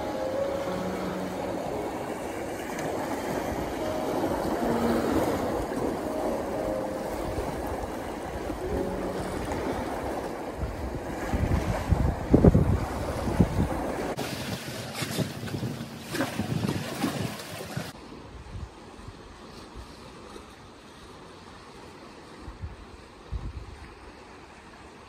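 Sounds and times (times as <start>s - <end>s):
waves splashing over rocks: 0.0s - 18.2s
wind buffeting microphone: 0.0s - 19.2s, 22.4s - 24.0s.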